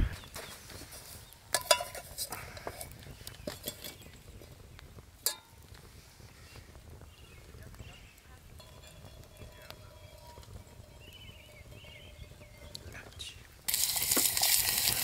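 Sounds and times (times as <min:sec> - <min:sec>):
metal cookware clinking: 0:01.5 - 0:02.2, 0:03.4 - 0:04.0, 0:05.2 - 0:05.6, 0:08.6 - 0:11.1.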